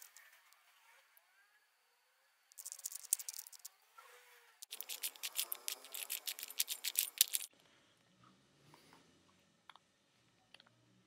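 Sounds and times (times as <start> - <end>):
puzzle cube layers clicking: 2.5 - 3.7, 4.6 - 7.5.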